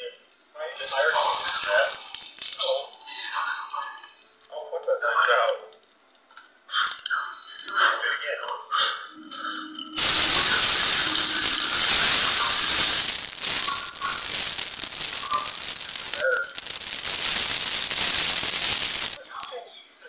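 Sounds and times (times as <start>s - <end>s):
fire extinguisher hissing spray: 0.8s - 4.4s, 9.3s - 19.7s.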